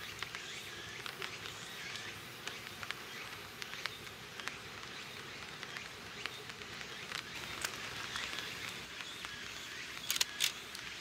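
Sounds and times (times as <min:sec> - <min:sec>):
insect buzz: 0:00.0 - 0:11.0
sharp clicks: 0:10.0 - 0:11.0.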